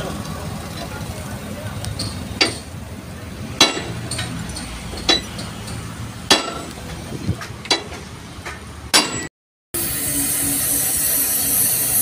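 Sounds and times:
sledgehammer striking steel bar: 3.6s - 6.9s, 8.9s - 9.3s.

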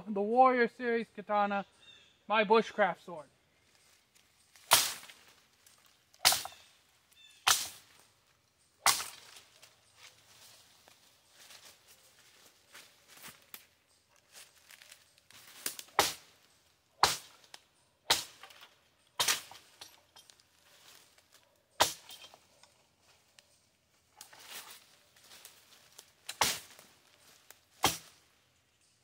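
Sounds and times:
sword chopping tree limbs: 4.5s - 5.3s, 6.2s - 6.7s, 7.4s - 8.0s, 8.8s - 9.5s, 15.4s - 16.4s, 17.0s - 20.4s, 21.8s - 22.4s, 26.2s - 26.9s, 27.7s - 28.2s.

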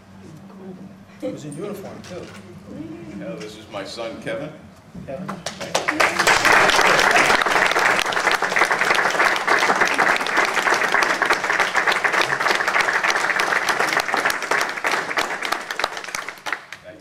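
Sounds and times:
audience applauding: 5.4s - 17.0s.

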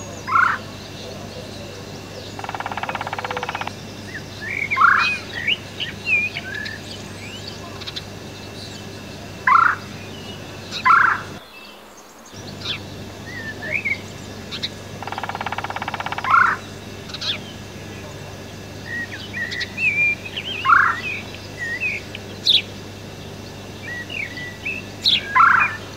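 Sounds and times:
bird calls and chirps: 0.0s - 25.9s
woodpecker drumming: 0.2s - 8.4s, 12.4s - 25.9s
low steady hum: 12.4s - 25.9s.

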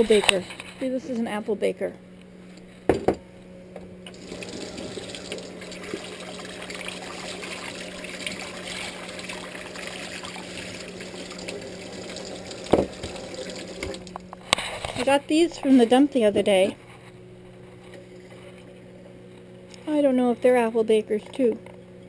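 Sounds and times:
bowl being rinsed: 4.1s - 14.2s
tap running into metal sink: 11.4s - 14.1s.

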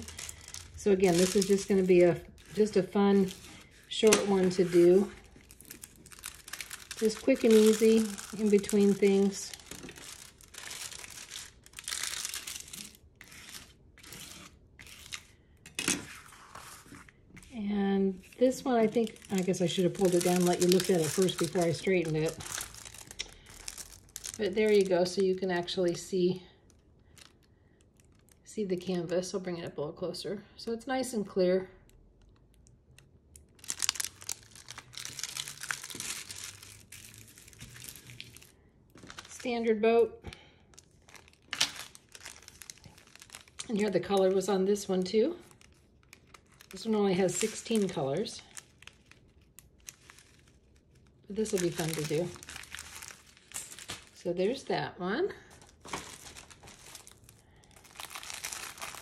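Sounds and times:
plastic film crinkling under scraper: 0.0s - 29.3s, 32.1s - 54.7s, 55.4s - 59.0s.

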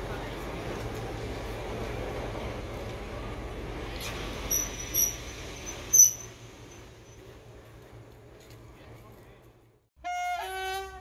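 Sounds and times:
train coaches rumbling: 0.0s - 9.7s
train brakes squealing: 4.0s - 7.3s.

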